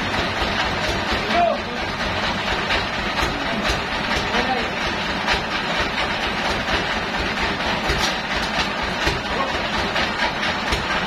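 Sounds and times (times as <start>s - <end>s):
rattling and clatter: 0.0s - 11.0s
sawmill machinery rumbling: 0.0s - 11.0s.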